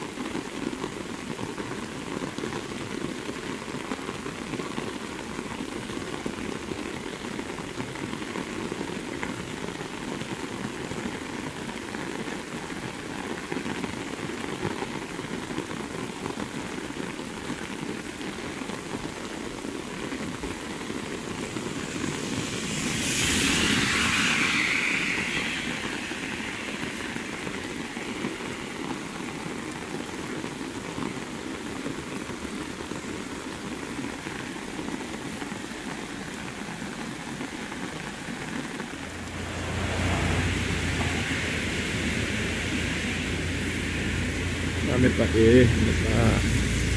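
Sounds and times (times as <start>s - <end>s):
heavy rain hissing: 0.0s - 46.9s
loud rushing swell: 20.3s - 29.4s, 38.6s - 46.9s.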